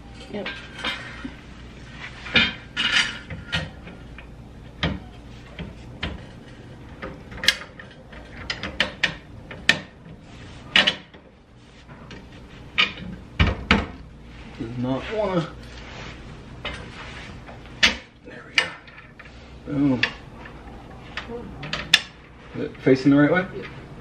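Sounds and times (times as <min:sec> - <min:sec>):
metal parts clicking and knocking: 0:07.0 - 0:09.9.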